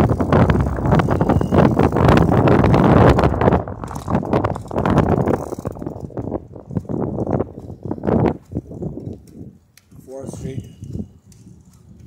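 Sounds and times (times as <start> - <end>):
low rumble: 0.0 - 8.9
bike rattling clicks and knocks: 0.0 - 12.0
wind buffeting microphone: 0.0 - 12.0.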